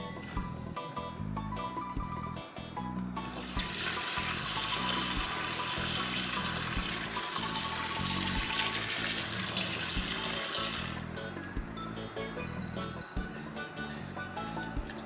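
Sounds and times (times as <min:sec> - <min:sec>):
background music with beat: 0:00.0 - 0:15.0
water pouring into glass bowl: 0:03.4 - 0:11.1.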